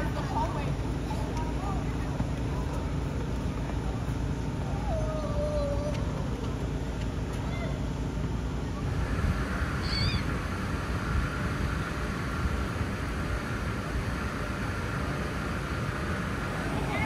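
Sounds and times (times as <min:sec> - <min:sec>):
steady low rumble: 0:00.0 - 0:17.0
wavering animal cry: 0:09.8 - 0:10.3.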